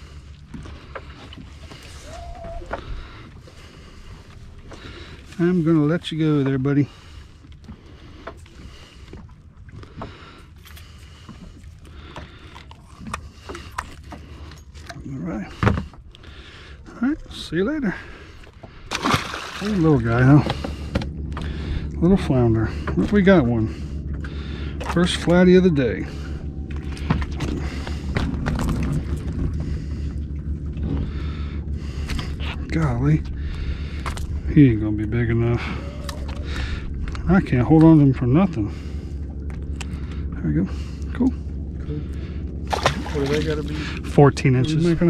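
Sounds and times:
wind and water rumble: 0.0s - 45.0s
fish knocking and clicking on boat: 20.4s - 21.6s.

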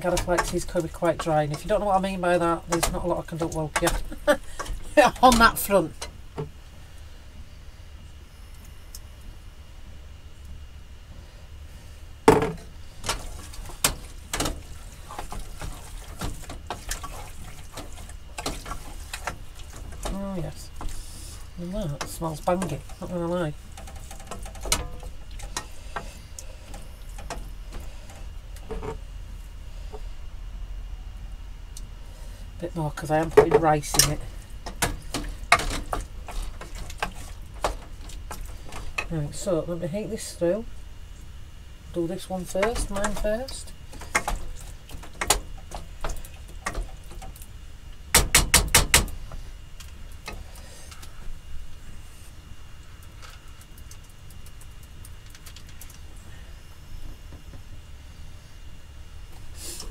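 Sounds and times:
wooden spoon stirring a pan: 0.0s - 5.7s, 13.0s - 29.0s, 33.0s - 40.3s
steady low hum: 0.0s - 59.9s.

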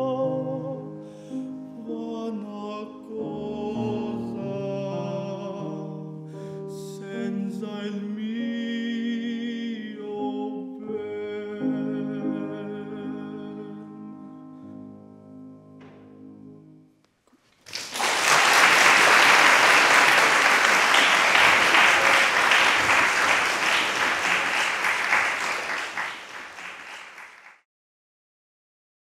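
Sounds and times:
piano chords ringing: 0.0s - 17.0s
audience applauding: 17.6s - 27.6s.

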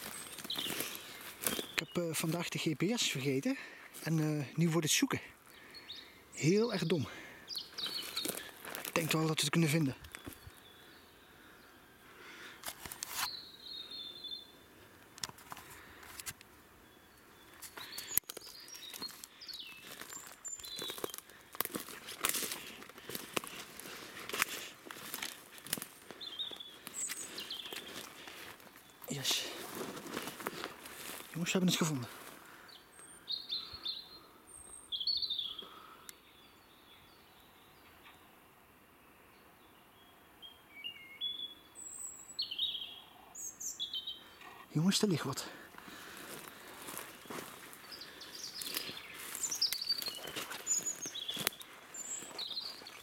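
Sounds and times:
footsteps on dry leaves and twigs: 0.0s - 4.4s, 6.5s - 10.7s, 12.6s - 13.4s, 15.0s - 16.4s, 17.4s - 33.0s, 45.4s - 53.0s
small birds chirping: 0.0s - 53.0s.

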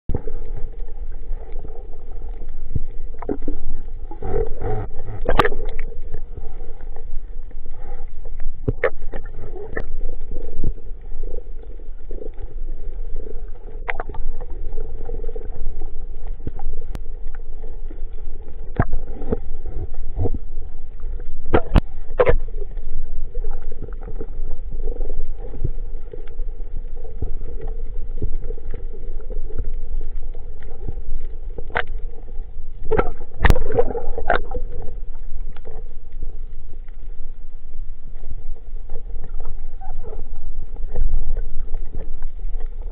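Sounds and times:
underwater low rumble: 0.0s - 42.9s
constant hum: 0.1s - 42.9s
sharp underwater clicks and knocks: 4.6s - 5.9s, 8.6s - 9.9s, 21.4s - 22.5s, 32.8s - 34.6s.

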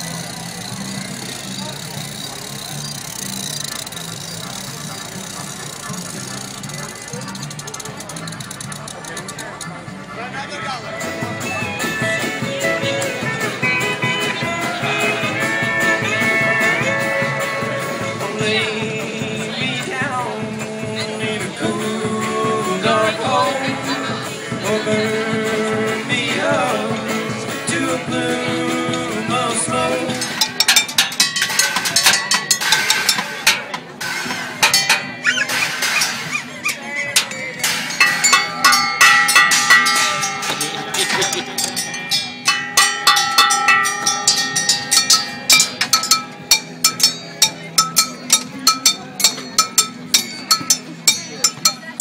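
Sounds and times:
metal percussion clanking: 0.0s - 9.9s, 28.6s - 52.0s
acoustic guitar: 0.0s - 52.0s
upright bass: 0.0s - 52.0s
man singing: 14.4s - 30.5s.

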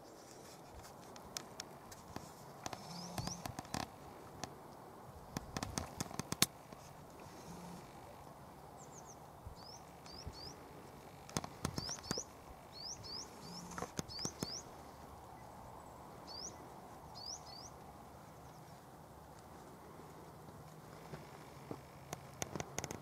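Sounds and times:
sharp clicks: 1.1s - 4.5s, 5.3s - 6.6s, 11.2s - 12.3s, 13.6s - 14.6s, 22.1s - 23.0s
small bird chirping: 2.6s - 3.9s, 8.8s - 18.9s.

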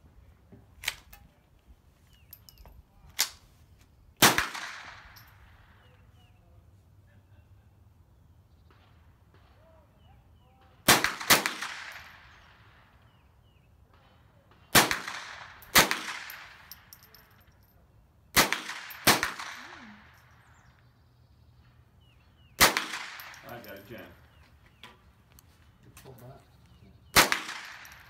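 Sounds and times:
rifle shots echoing: 4.2s - 5.8s, 10.8s - 13.0s, 14.7s - 17.3s, 18.3s - 20.4s, 22.6s - 24.2s, 27.1s - 28.0s.

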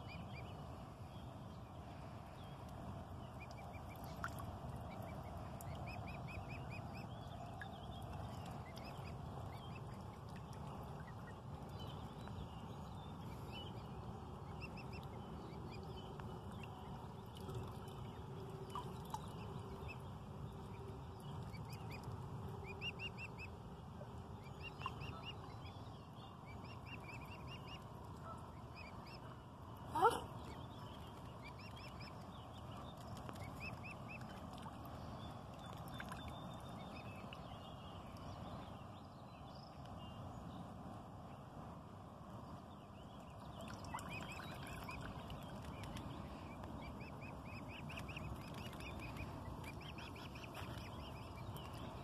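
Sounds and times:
low outdoor rumble: 0.0s - 52.0s.

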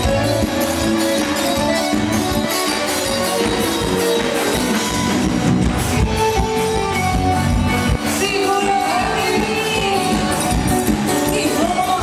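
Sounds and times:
live band playing dance music: 0.0s - 12.0s
person singing: 8.1s - 12.0s.

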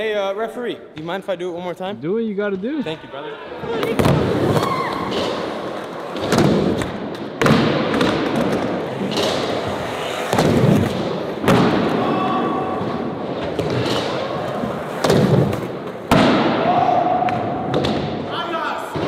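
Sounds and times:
skateboard wheels rumbling: 7.5s - 16.1s.

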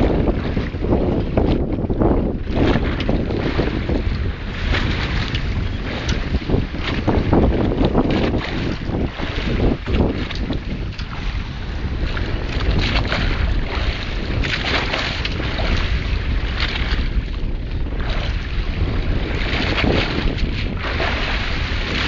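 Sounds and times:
low rumble: 0.0s - 22.0s
water washing around hull: 0.0s - 22.0s
wind buffeting microphone: 0.0s - 22.0s.

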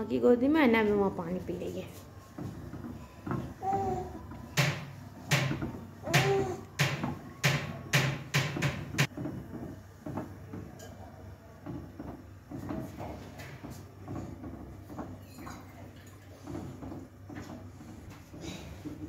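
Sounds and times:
metal spatula knocking on metal pan: 4.5s - 9.2s.

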